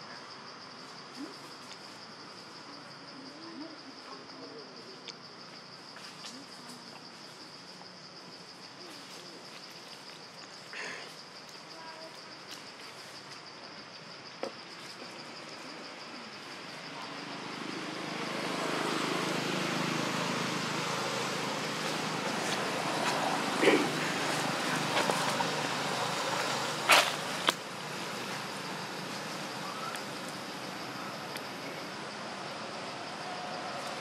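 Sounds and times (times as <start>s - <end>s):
insect drone: 0.0s - 34.0s
rustle: 0.0s - 34.0s
vehicle engine: 16.8s - 34.0s.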